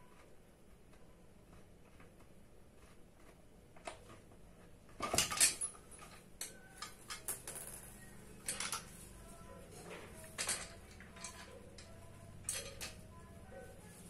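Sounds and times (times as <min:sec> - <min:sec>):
metal clinking and clattering: 0:04.9 - 0:09.1, 0:09.9 - 0:13.2.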